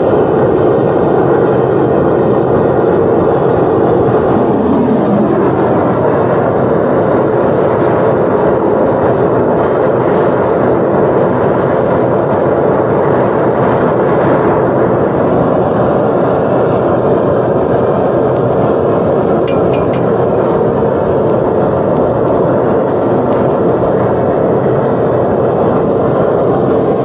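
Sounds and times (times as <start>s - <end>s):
propane burner rushing: 0.0s - 27.0s.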